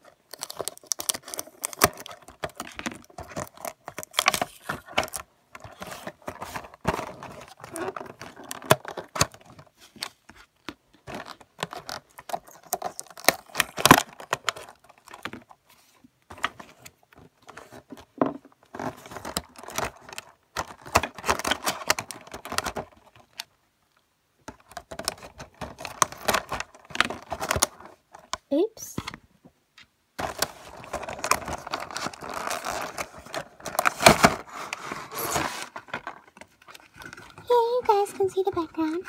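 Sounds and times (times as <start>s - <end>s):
plastic and cardboard crinkling: 0.0s - 29.2s, 30.2s - 39.0s.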